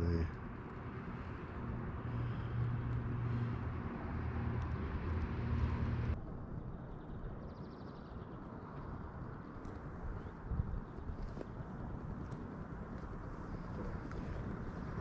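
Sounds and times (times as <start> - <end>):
distant traffic rumble: 0.0 - 15.0.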